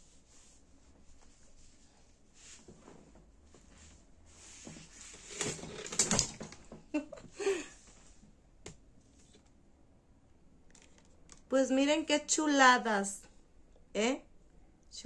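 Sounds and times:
fabric rustling: 0.0 - 6.7.

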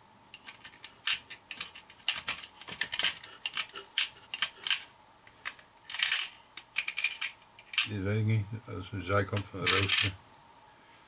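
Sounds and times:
small parts clicking in plastic box: 0.4 - 7.9, 9.3 - 10.1.

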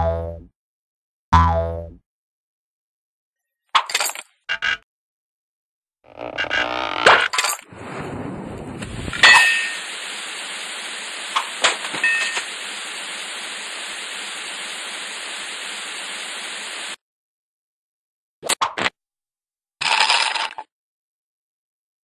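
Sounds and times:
low rumble: 7.7 - 10.9
steady hiss: 8.8 - 17.0.

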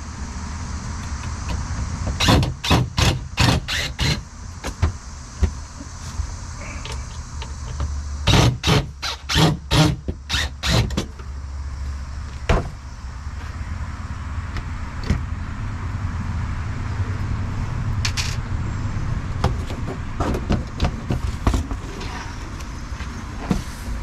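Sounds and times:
low rumble and hiss: 0.0 - 24.0.

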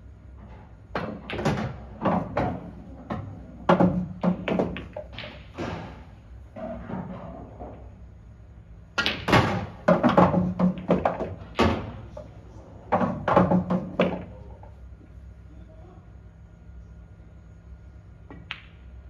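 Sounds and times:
pool balls clacking: 0.4 - 8.0, 9.0 - 14.8.

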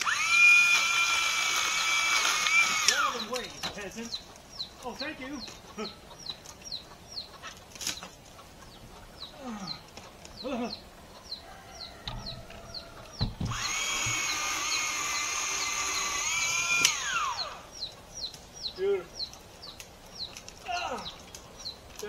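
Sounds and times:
chainsaw whining: 0.0 - 3.5, 12.2 - 17.7
chickens clucking: 1.6 - 22.0.

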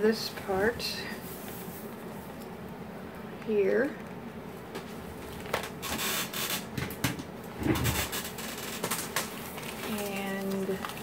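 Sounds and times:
cable rustling and scraping: 4.8 - 11.0.

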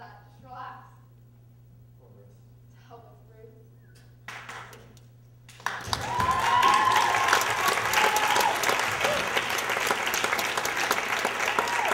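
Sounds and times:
audience applauding: 5.5 - 11.9
person cheering: 5.9 - 9.5, 11.4 - 11.9.

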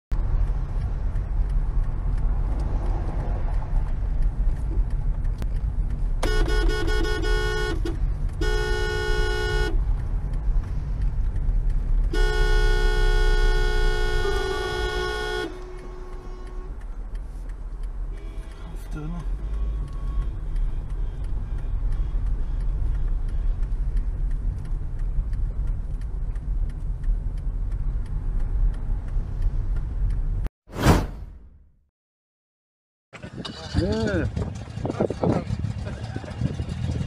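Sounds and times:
road and engine rumble: 0.1 - 31.1, 33.1 - 37.0
car horn honking: 6.2 - 9.8, 12.1 - 16.8.

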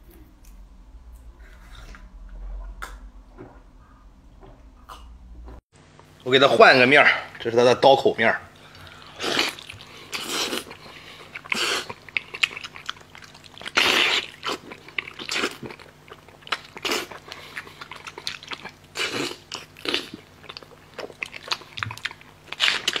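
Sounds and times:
biting and chewing meat: 8.6 - 23.0.

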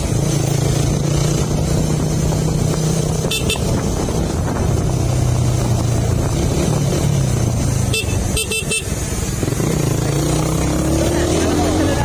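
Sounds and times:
motorcycle engine running: 0.0 - 12.0
wind and road noise: 0.0 - 12.0
horn beeps: 3.2 - 3.8, 7.9 - 9.0.

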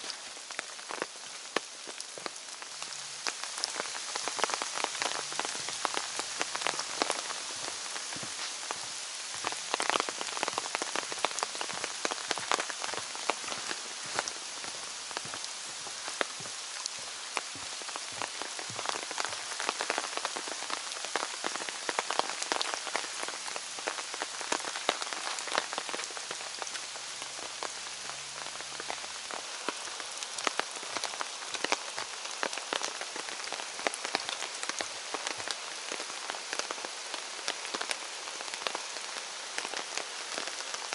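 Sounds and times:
rain hiss: 0.0 - 40.9
sharp raindrop taps: 3.3 - 23.0.

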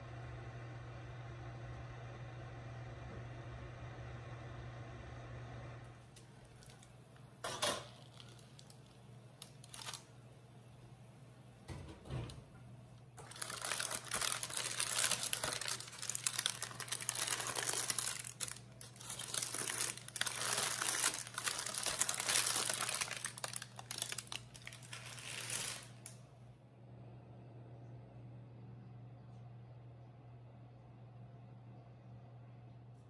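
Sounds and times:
parchment paper crinkling: 6.2 - 7.0, 7.8 - 10.1, 13.2 - 26.2
rice shifting in paper: 13.2 - 26.1.

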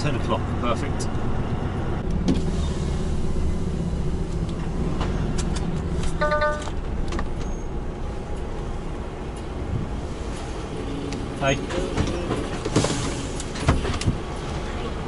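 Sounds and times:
truck diesel engine rumbling: 0.0 - 15.0
short electronic beep: 6.2 - 6.7.

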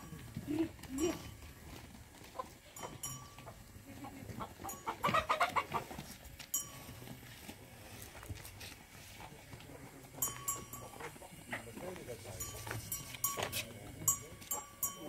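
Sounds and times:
hen clucking: 2.1 - 6.2, 10.7 - 11.8.

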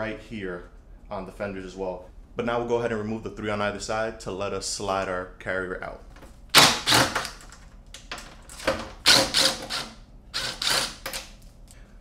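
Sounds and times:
cordless power driver rattling: 6.5 - 11.4.

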